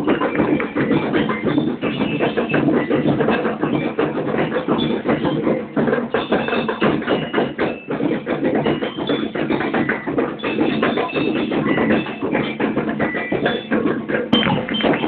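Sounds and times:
fast marching drums: 0.0 - 15.0.

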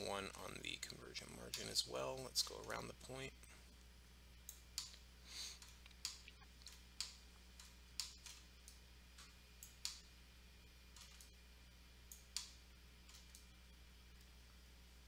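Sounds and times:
low electrical hum: 0.0 - 15.0
computer mouse clicks: 12.1 - 13.5.

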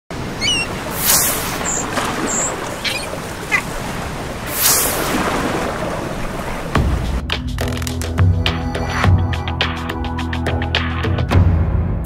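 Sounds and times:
waves on open water: 0.1 - 7.2
wind: 0.1 - 8.1
short high chirps: 0.4 - 3.1.

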